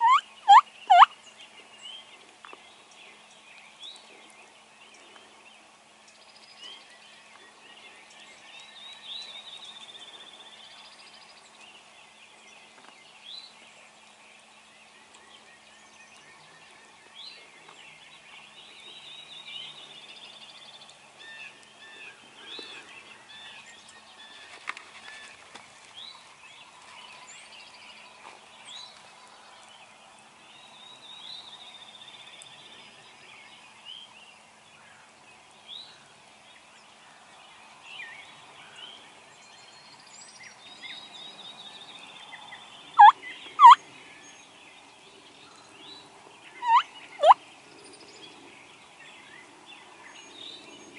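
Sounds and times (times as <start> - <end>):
wild turkeys calling: 0.0 - 1.1, 43.0 - 43.8, 46.6 - 47.4
songbirds chorus: 0.0 - 50.9.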